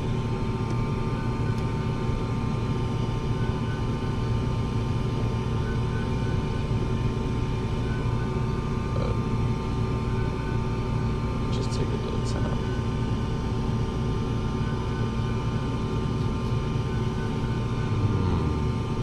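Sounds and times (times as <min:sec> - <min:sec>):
low machinery hum: 0:00.0 - 0:19.0
faint short repeating tone: 0:17.7 - 0:18.8.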